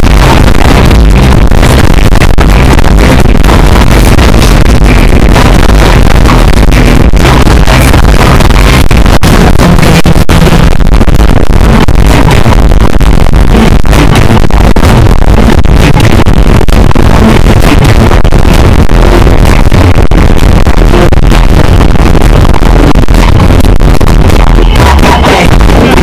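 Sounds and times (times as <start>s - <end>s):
distorted music over loudspeakers: 0.0s - 26.0s.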